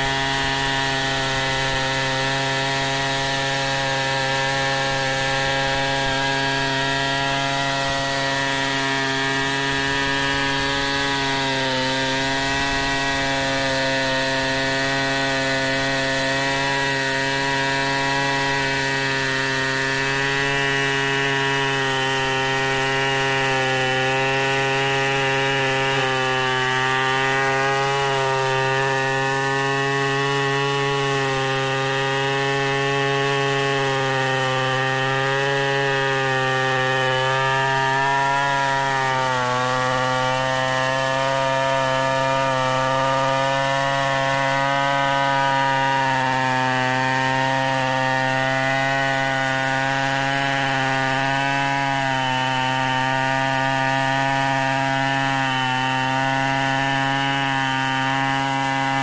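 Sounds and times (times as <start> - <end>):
chainsaw cutting log at full throttle: 0.0 - 59.0.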